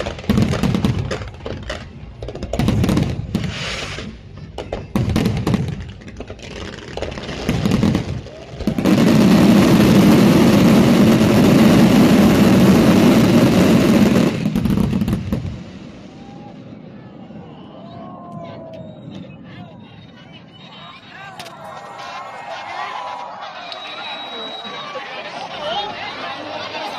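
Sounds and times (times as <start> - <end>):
fireworks bangs and crackles: 0.0 - 19.5.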